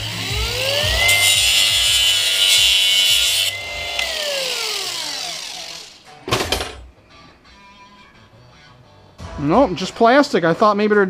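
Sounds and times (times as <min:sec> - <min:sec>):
angle grinder cutting plastic: 0:00.0 - 0:06.1
grinder disc spinning down: 0:00.0 - 0:06.1.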